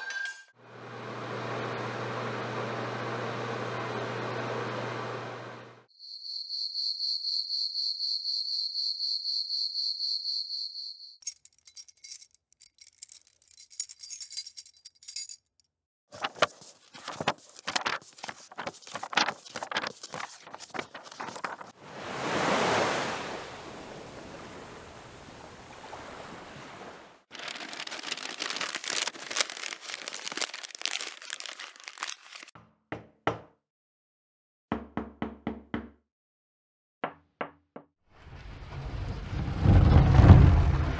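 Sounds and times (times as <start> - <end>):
insect trilling: 6.0 - 11.2
key chain jingling: 11.2 - 15.6
pages flipping: 16.1 - 21.8, 27.3 - 32.6
paper crumpling: 16.2 - 21.8, 27.3 - 32.6
ocean wave washing in: 21.8 - 27.2
knocking on door: 34.7 - 36.0.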